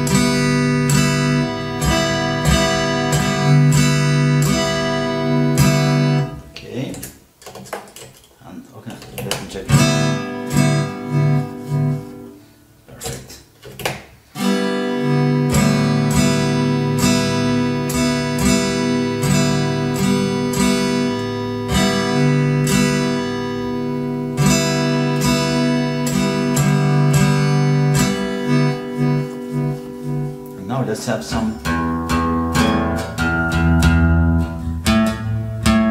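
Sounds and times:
strummed acoustic guitar music: 0.0 - 8.3, 8.9 - 35.9.

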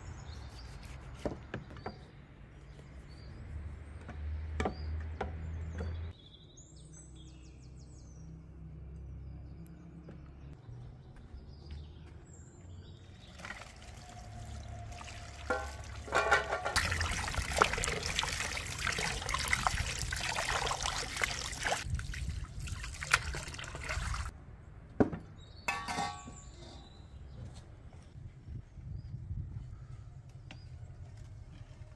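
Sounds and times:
hose water splashing into bowl: 13.3 - 24.3
steel bowl clinking: 13.8 - 21.1.

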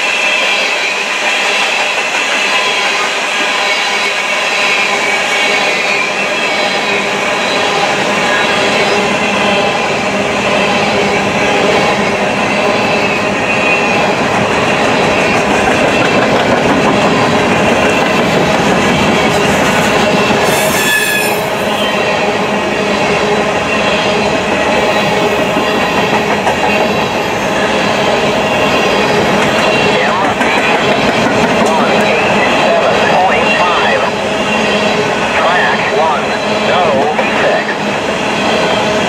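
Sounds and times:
steel train wheels rolling on rail: 0.0 - 39.0
wheels squealing: 19.2 - 22.1
high screech: 20.4 - 22.0.

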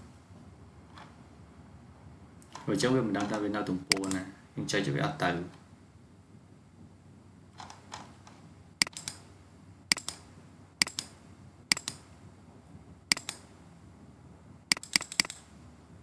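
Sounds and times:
computer mouse clicking: 3.2 - 4.3, 8.8 - 9.2, 9.9 - 10.2, 10.8 - 12.0, 13.1 - 13.4, 14.7 - 15.5.

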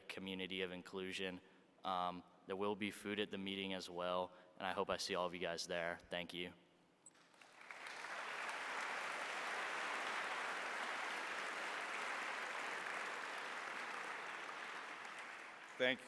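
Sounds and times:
audience applauding: 7.2 - 16.0.

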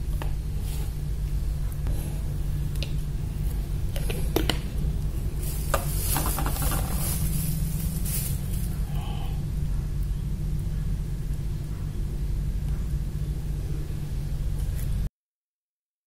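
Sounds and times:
steady low hum: 0.0 - 15.1
rustling: 5.0 - 9.0.

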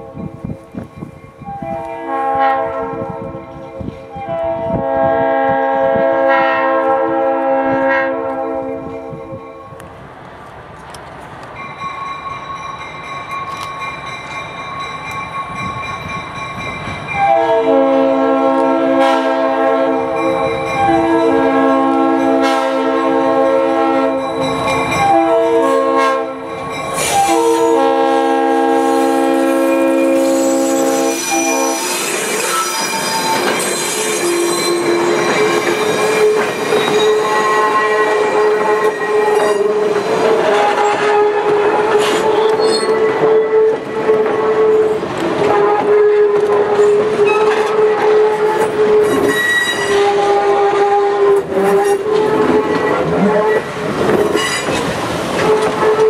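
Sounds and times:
approaching locomotive: 0.0 - 56.0
locomotive air horn blasts: 1.4 - 3.5, 4.1 - 9.7, 17.2 - 24.3, 25.0 - 54.7, 55.4 - 56.0
train wheel squeal: 26.4 - 27.9, 28.8 - 41.2, 41.9 - 43.7, 46.8 - 47.8, 48.5 - 50.2, 51.7 - 55.7.

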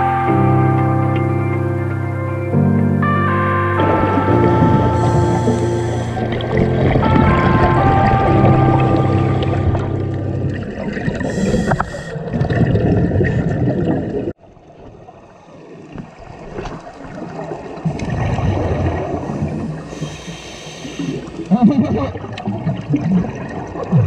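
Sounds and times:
bubbles gurgling: 3.8 - 24.0
regulator breathing underwater: 4.5 - 7.4, 11.1 - 12.5, 19.3 - 21.5.

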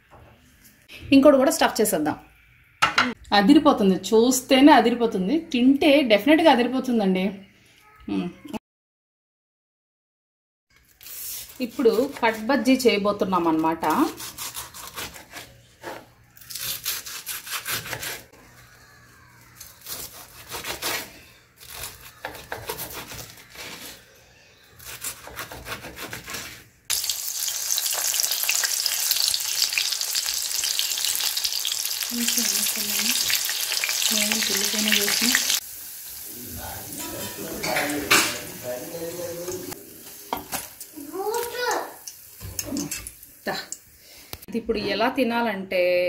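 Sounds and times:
knife cutting on wooden board: 24.8 - 26.6
deep-frying sizzle in hot oil: 26.9 - 43.6.

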